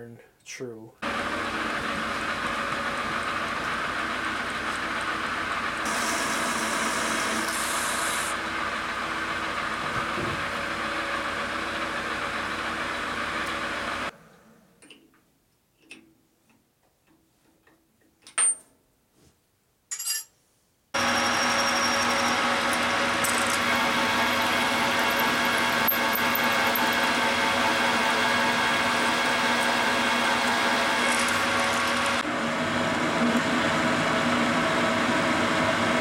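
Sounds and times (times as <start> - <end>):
metal lathe machining: 1.1 - 8.8, 21.0 - 32.2
drill boring into metal: 5.9 - 8.3, 21.0 - 32.2.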